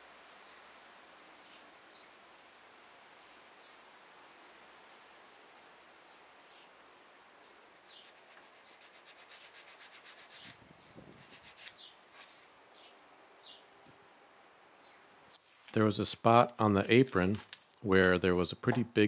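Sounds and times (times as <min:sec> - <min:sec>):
hands rubbing thin wood veneer: 0:07.7 - 0:12.5.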